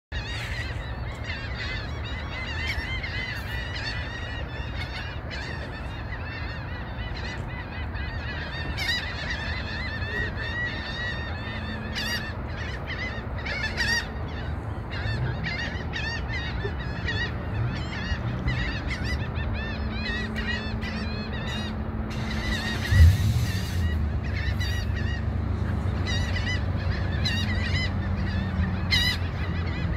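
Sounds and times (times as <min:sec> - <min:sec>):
flock of birds squawking: 0:00.1 - 0:29.9
low rumble: 0:22.2 - 0:25.9.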